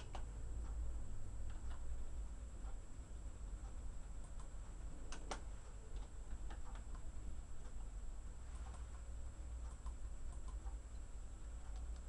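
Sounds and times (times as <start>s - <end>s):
steady low hum: 0.0s - 12.0s
faint small clicks: 3.6s - 7.9s, 9.6s - 12.0s.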